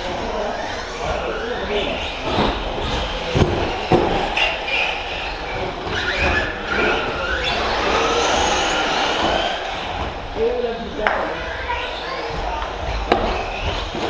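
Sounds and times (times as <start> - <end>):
rc truck motor whine: 0.0 - 14.0
steady running noise: 0.0 - 14.0.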